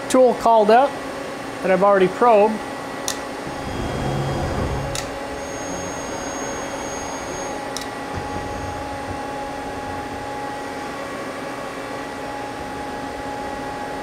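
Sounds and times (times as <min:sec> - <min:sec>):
lathe machine hum: 0:03.3 - 0:14.0.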